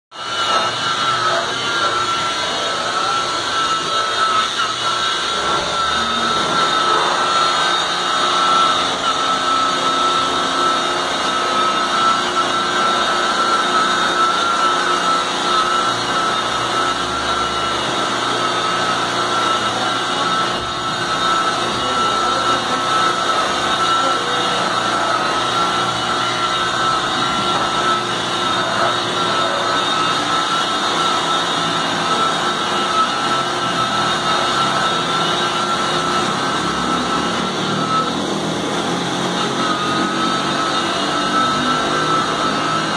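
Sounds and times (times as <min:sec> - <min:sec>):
rotary polisher whining: 0:00.1 - 0:42.9.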